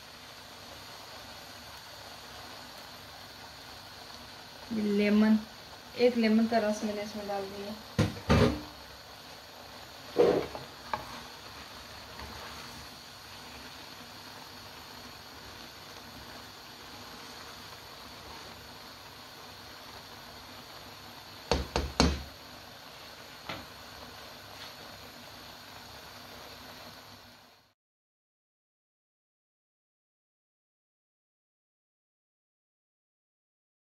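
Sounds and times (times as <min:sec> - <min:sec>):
faint steady hiss: 0:00.0 - 0:27.8
spatula knocking against wok: 0:21.5 - 0:22.2.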